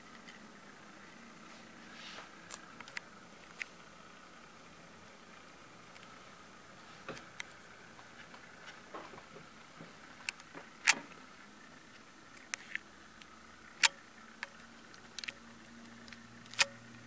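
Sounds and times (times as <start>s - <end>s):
faint steady hiss: 0.0s - 17.0s
sharp clicks: 2.5s - 3.8s, 12.3s - 17.0s.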